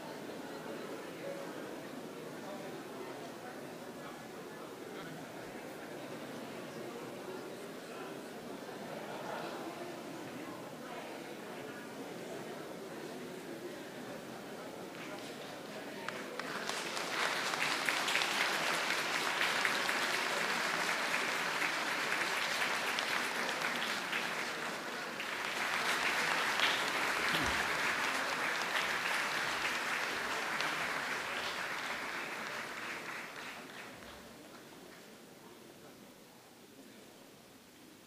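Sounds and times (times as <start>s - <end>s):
audience applauding: 16.0s - 34.2s.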